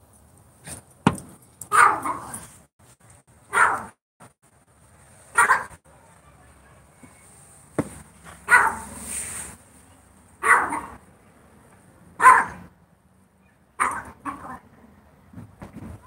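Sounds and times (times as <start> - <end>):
dog barking: 1.7 - 2.4, 3.5 - 4.0, 5.3 - 6.9, 8.4 - 9.0, 10.4 - 11.0, 12.2 - 12.7, 13.8 - 14.6.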